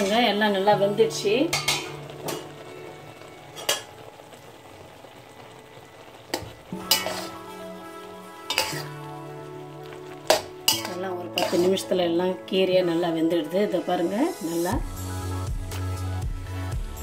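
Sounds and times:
food sizzling in a wok: 0.0 - 17.0
metal spatula stirring: 1.5 - 2.5, 6.3 - 9.4, 10.1 - 12.0
spatula clattering against pan: 1.5 - 2.5, 6.8 - 7.3, 8.5 - 8.9, 10.3 - 11.7.

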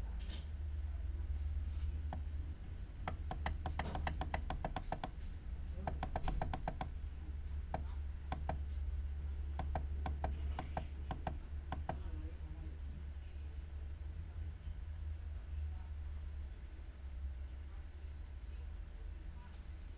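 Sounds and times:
computer mouse clicks: 3.1 - 5.1, 5.8 - 6.9, 7.8 - 8.6, 9.6 - 12.0.

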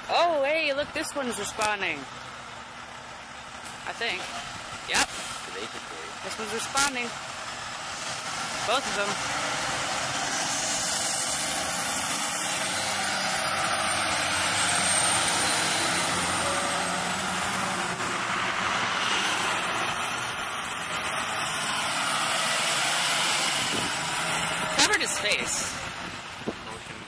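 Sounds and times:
fire truck engines rumbling: 0.0 - 27.0.

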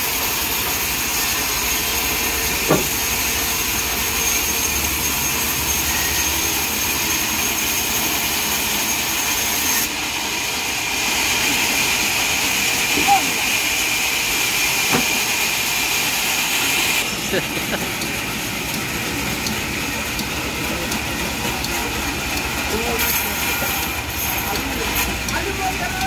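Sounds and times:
band saw hissing and whining: 0.0 - 26.0
short knock: 2.7 - 3.0.

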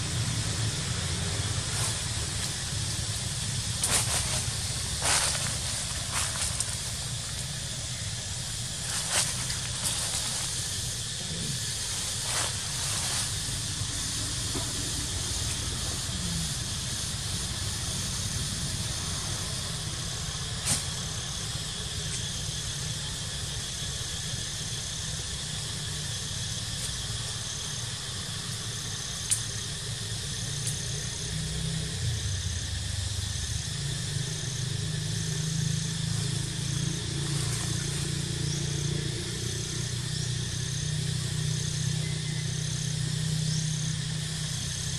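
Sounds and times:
high hiss: 0.0 - 44.9.

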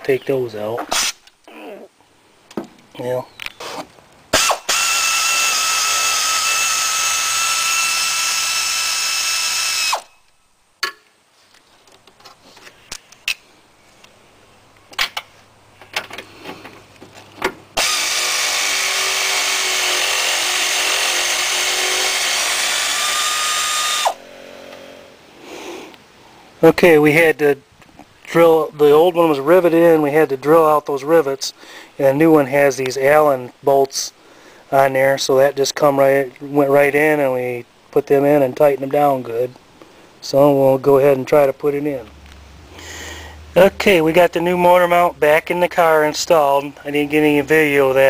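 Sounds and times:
air ratchet whining: 3.6 - 10.1, 17.8 - 24.8
air hiss: 25.3 - 26.5.

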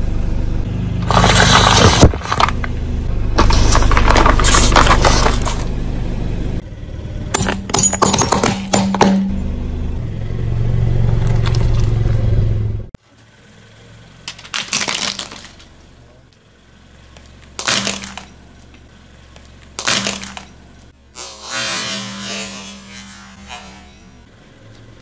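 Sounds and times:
plastic cracking and crunching: 1.0 - 2.7, 3.4 - 5.7, 14.3 - 15.7
tyre rumbling on concrete: 1.0 - 2.8, 3.4 - 5.7.

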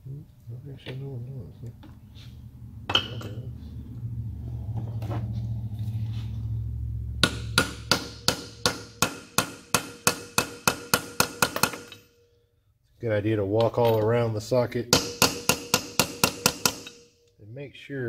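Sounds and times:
low hum: 0.1 - 8.7.

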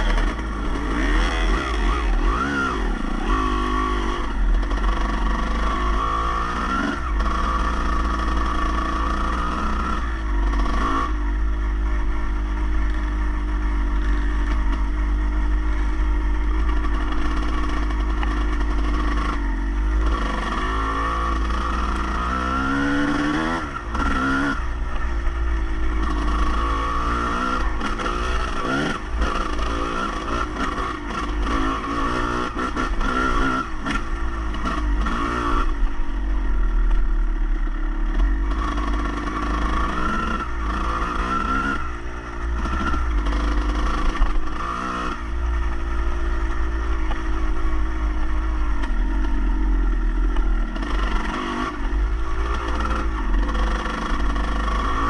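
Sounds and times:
engine revving: 0.0 - 36.1, 38.1 - 55.0
steady low rumble: 23.6 - 30.2, 44.3 - 54.8.

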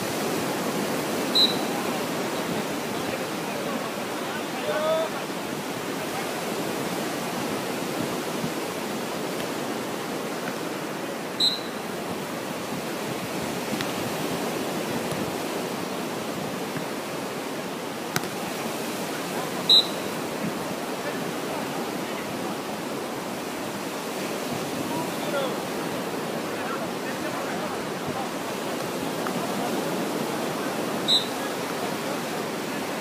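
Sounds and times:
beach surf: 0.0 - 33.0
wind on microphone: 5.5 - 10.8, 11.8 - 17.1.

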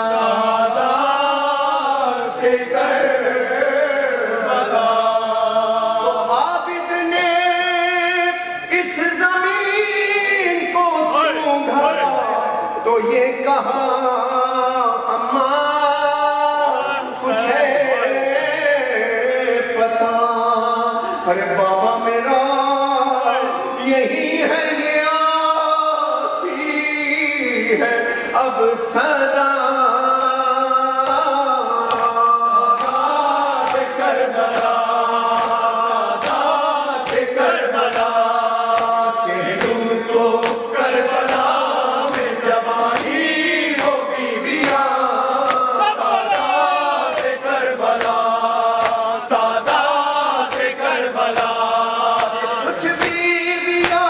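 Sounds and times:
man chanting a lament: 0.0 - 54.0
men's chorus chanting: 0.0 - 54.0.

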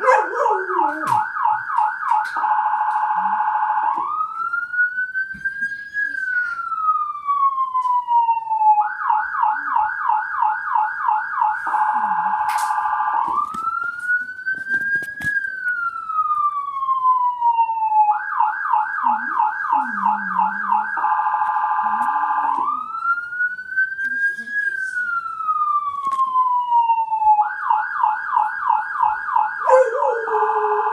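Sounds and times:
electronic emergency siren: 0.0 - 30.9.

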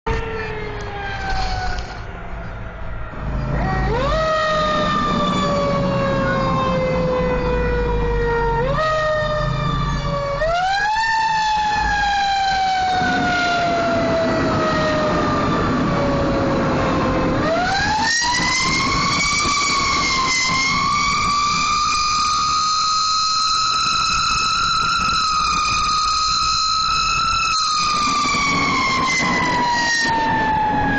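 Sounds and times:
mechanical wind-up siren: 0.1 - 2.1.

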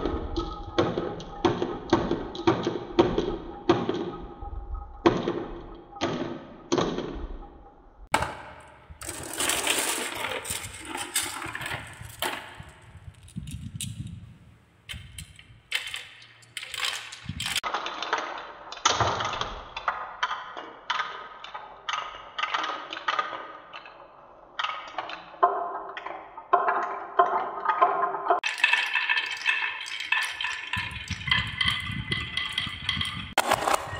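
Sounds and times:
marbles rolling on wooden tracks: 8.2 - 14.2, 14.9 - 18.7, 22.0 - 33.9
marbles clinking on spiral: 8.4 - 14.2, 14.9 - 17.7, 28.4 - 33.9.

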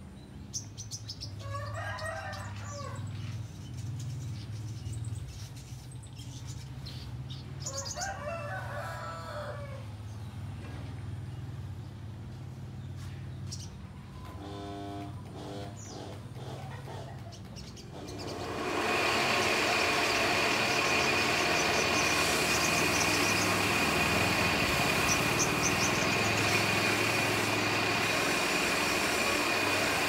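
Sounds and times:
loud steady hiss: 18.0 - 30.0.

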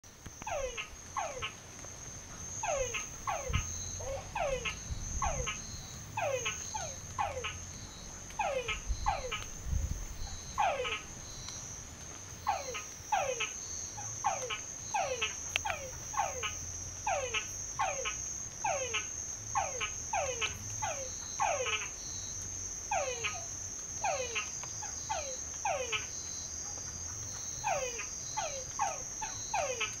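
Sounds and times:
frogs calling: 0.1 - 30.0
high insect trill: 0.1 - 30.0.

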